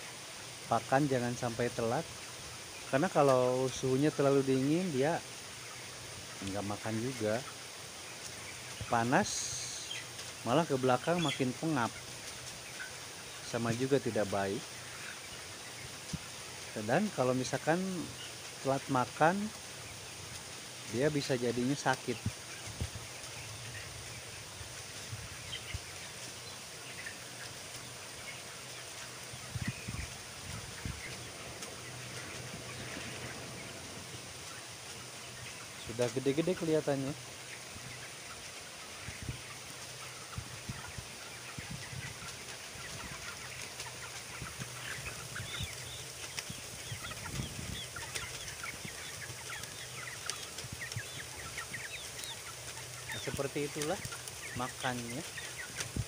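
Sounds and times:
chickens peeping: 0.0 - 56.0
ventilation hum and hiss: 0.0 - 56.0
steady low hum: 27.6 - 36.1.

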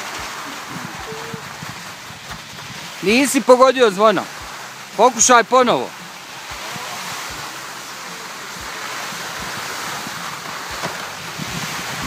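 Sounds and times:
wind on microphone: 0.0 - 3.2, 8.6 - 12.0
skis sliding over snow: 0.0 - 12.0.

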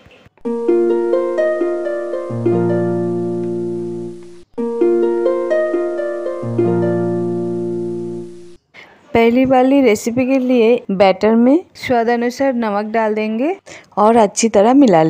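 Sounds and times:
plucked harp-like music: 0.4 - 8.6.

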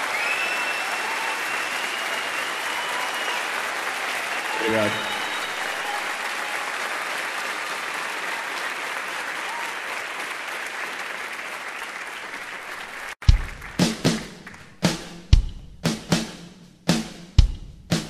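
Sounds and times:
audience applauding: 0.0 - 14.9
loud drum kit hit: 13.2 - 18.0.

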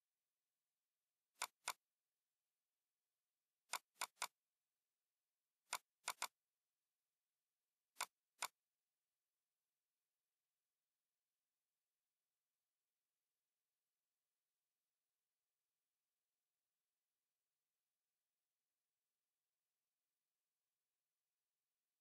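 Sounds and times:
computer mouse button clicking: 1.4 - 1.8, 3.7 - 4.3, 5.7 - 6.4.

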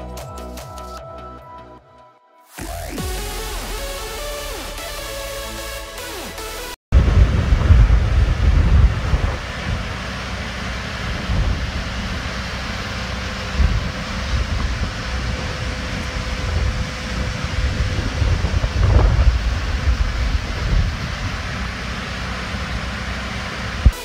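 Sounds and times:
wind buffeting microphone: 6.9 - 24.0
grain trucks and auger running: 7.0 - 24.0.

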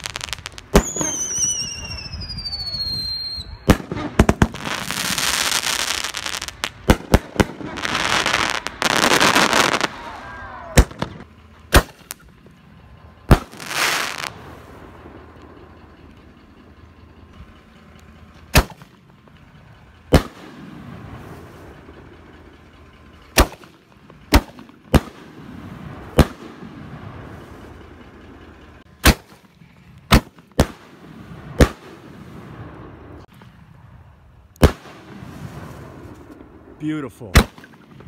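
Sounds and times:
firework shells bursting: 0.0 - 2.2, 10.8 - 12.4
low rumble: 0.0 - 38.0.

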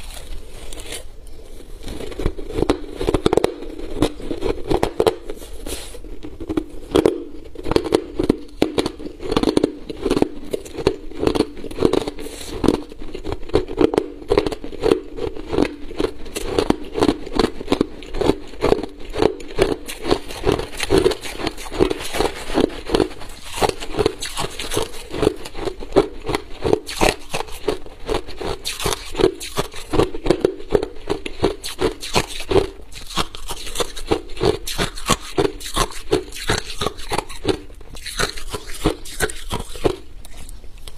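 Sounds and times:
ice crunched between teeth: 1.8 - 40.9
spoon scraping through ice: 19.5 - 30.0, 31.3 - 40.0.

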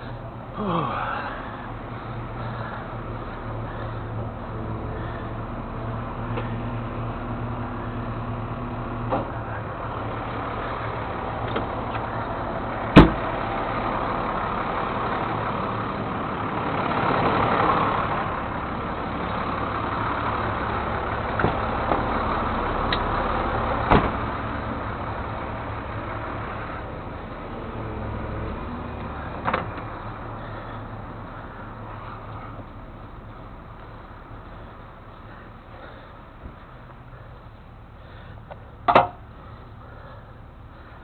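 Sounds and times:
engine idling: 0.0 - 41.0
sharp knocks: 13.0 - 13.2.

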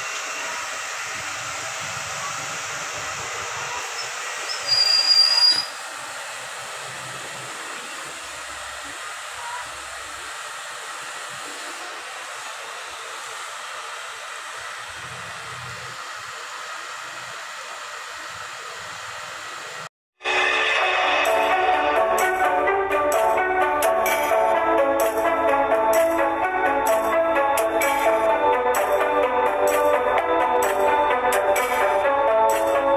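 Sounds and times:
music: 20.2 - 32.9.

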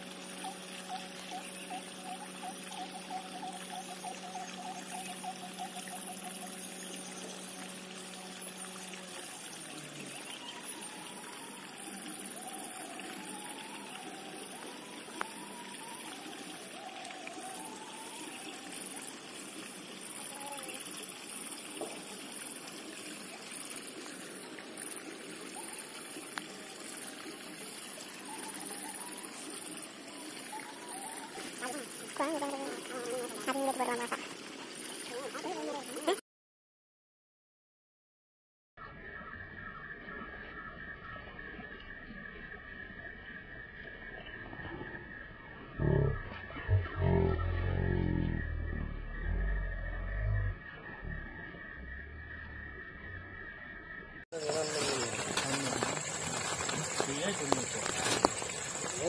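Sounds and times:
pulsing high buzz: 0.0 - 22.8, 45.8 - 53.6
water pouring and splashing: 6.2 - 36.2, 54.3 - 59.0
water pouring over a trap: 54.4 - 59.0.

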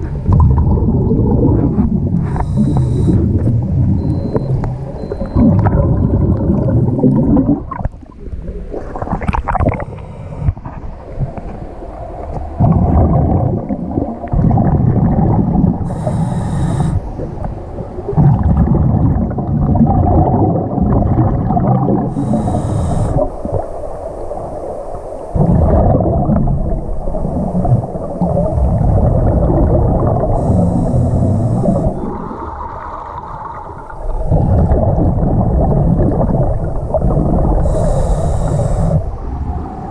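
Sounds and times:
bubbling exhale underwater: 0.0 - 24.5, 25.3 - 39.9
regulator hissing inhale: 2.2 - 3.4, 15.8 - 17.2, 22.1 - 23.5, 30.3 - 32.1, 37.6 - 39.2.

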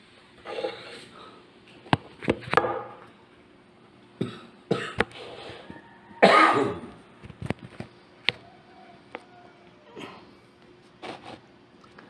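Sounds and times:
person coughing: 4.2 - 5.1, 6.2 - 6.9.

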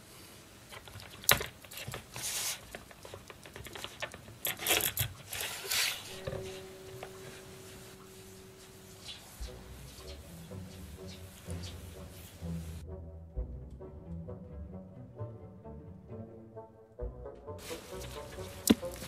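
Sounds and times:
rubbing and scraping of sheath: 1.6 - 6.5.

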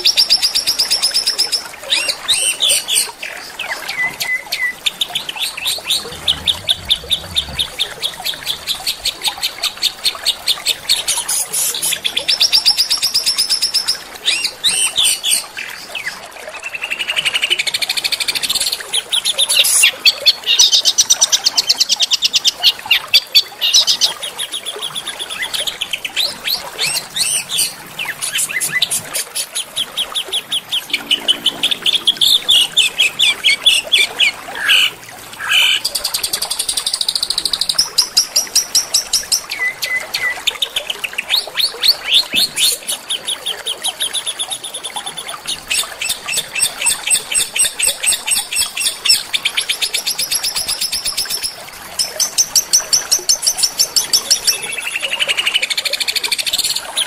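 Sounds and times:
songbirds trilling: 5.5 - 10.0.

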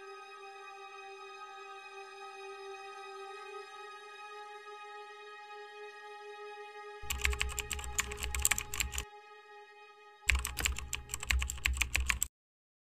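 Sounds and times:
rapid keyboard typing clicks: 7.0 - 9.0, 10.3 - 12.3.

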